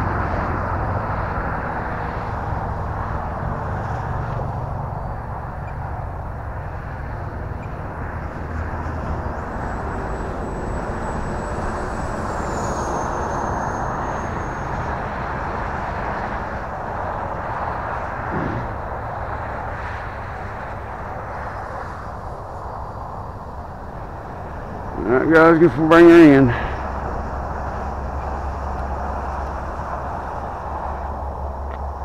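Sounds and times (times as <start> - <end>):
ducted fan rushing: 0.0 - 32.0
thin high whine: 9.1 - 16.7.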